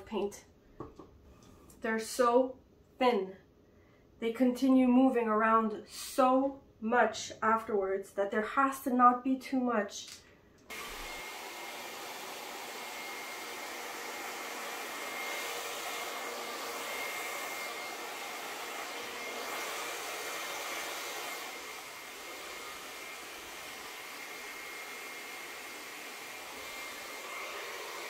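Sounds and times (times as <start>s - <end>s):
blow dryer running: 10.7s - 28.0s.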